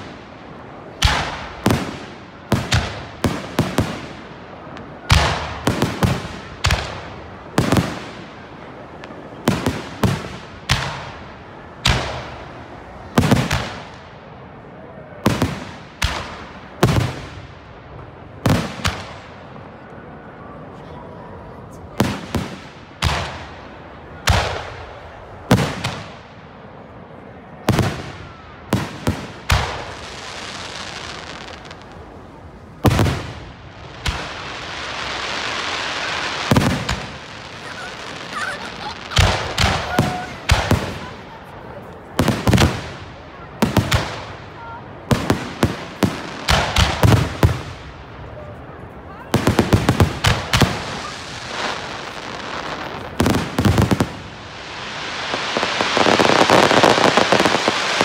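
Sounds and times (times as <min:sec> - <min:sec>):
fireworks bursting with bangs: 0:00.0 - 0:14.5, 0:15.1 - 0:19.8, 0:21.9 - 0:58.0
fireworks crackling hiss: 0:27.7 - 0:48.4, 0:49.3 - 0:58.0.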